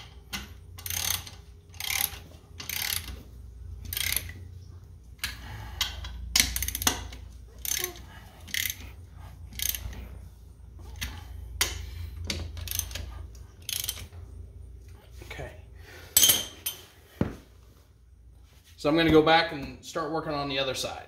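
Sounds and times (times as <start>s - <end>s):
ratchet wrench clicking: 0.3s - 3.2s, 3.8s - 4.4s, 5.2s - 8.9s, 9.5s - 10.0s, 11.0s - 14.2s.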